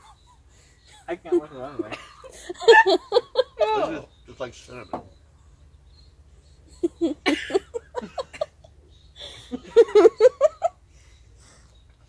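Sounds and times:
person laughing: 1.0 - 3.8, 6.8 - 10.7.

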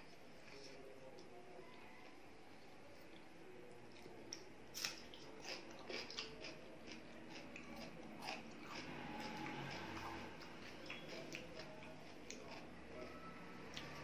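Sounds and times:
person chewing: 3.9 - 12.8.

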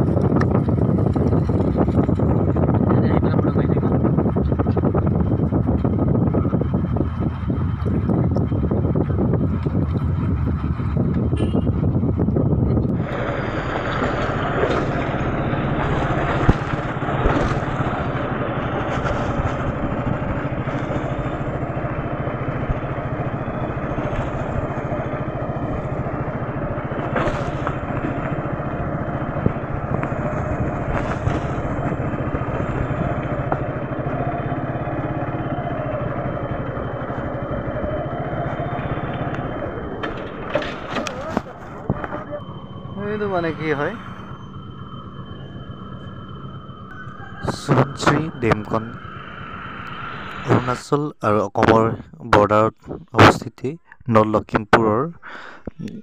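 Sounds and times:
wind noise on microphone: 0.0 - 22.0, 22.6 - 42.4
vehicle running: 0.0 - 56.0.

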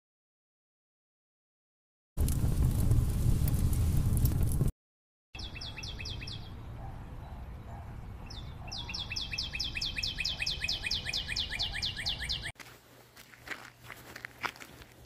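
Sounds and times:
songbird trilling: 5.4 - 6.6, 8.3 - 12.5.

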